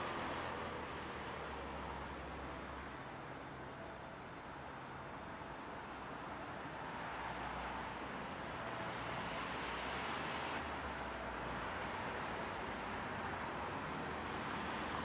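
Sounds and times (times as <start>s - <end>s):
city road traffic: 0.0s - 15.0s.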